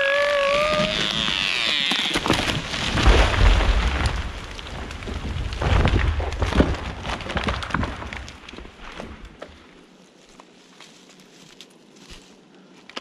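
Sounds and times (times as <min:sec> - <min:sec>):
branches snapping and cracking: 0:00.0 - 0:13.0
tree trunk thudding on ground: 0:00.6 - 0:09.6.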